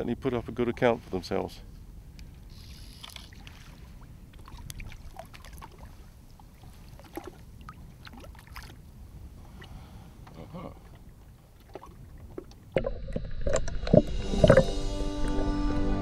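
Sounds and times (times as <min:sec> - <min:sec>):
water splashing and lapping: 0:02.2 - 0:14.7.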